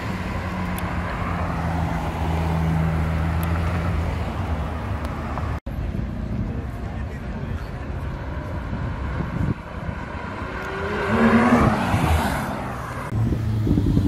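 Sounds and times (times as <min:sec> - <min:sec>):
street traffic: 0:00.0 - 0:14.0
car engine cruising past: 0:08.9 - 0:13.8.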